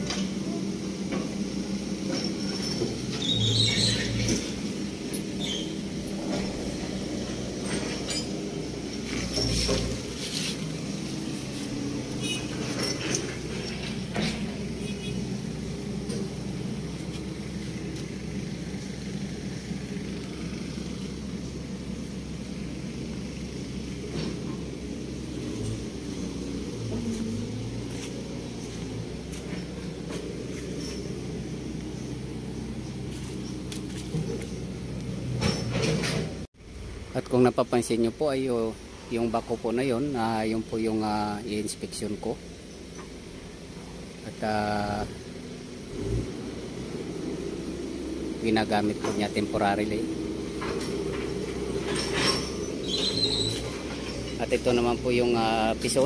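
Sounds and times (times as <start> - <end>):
compactor roller engine humming: 0.0 - 37.3, 38.6 - 56.0
short high squeaks: 2.1 - 4.6, 5.2 - 6.7, 7.6 - 10.6, 11.5 - 15.3, 51.8 - 54.4.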